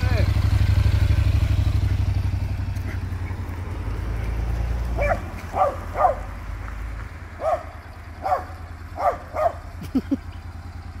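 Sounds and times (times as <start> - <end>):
motorcycle engine idling: 0.0 - 11.0
dog barking: 4.9 - 6.4, 7.4 - 9.7.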